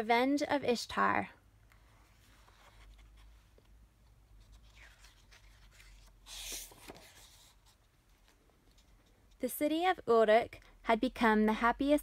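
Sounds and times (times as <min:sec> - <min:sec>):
soft paper rustle: 0:01.7 - 0:09.5
book page turning swish: 0:04.5 - 0:07.6.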